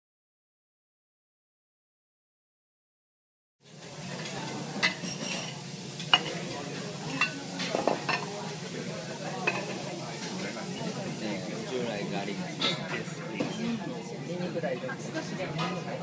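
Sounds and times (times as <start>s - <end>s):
griddle sizzling: 3.6s - 16.0s
metal utensils clinking on steel: 4.1s - 8.4s, 9.4s - 11.0s.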